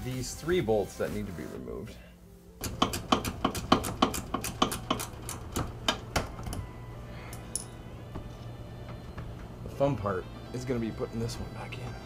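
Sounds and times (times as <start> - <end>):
hand ratchet clicking: 2.6 - 6.6.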